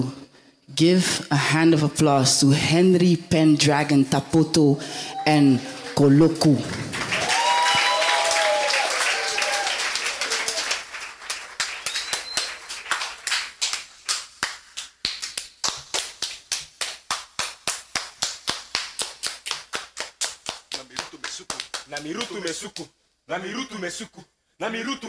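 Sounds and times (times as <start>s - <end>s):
rhythmic hand clapping: 6.4s - 23.0s
audience applause with whoops: 6.7s - 13.5s.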